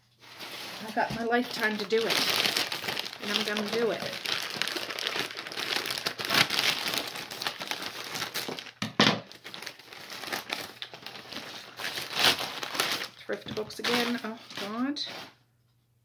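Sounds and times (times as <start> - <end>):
plastic bag crinkling: 0.1 - 15.4
scissors cutting plastic: 11.4 - 14.9.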